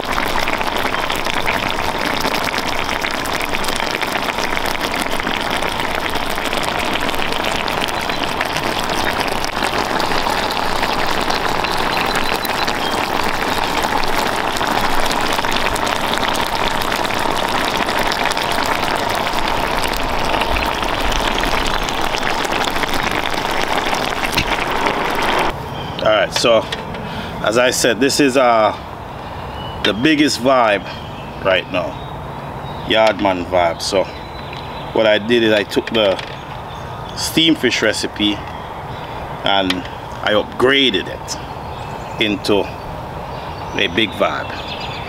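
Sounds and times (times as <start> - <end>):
sauce bubbling and sizzling: 0.0 - 25.6, 33.5 - 34.9.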